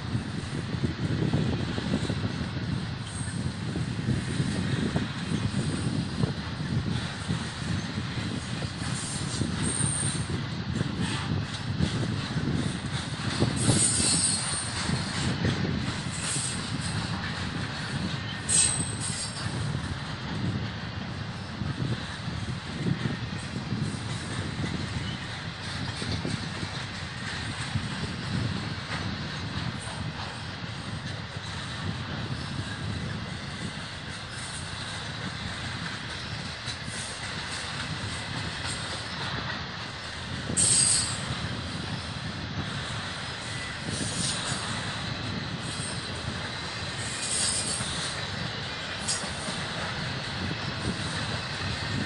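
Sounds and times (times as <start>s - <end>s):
train wheels rumbling on rail: 0.0s - 52.0s
high wheel squeal: 6.9s - 10.4s, 13.3s - 15.3s, 15.9s - 19.8s, 31.0s - 52.0s.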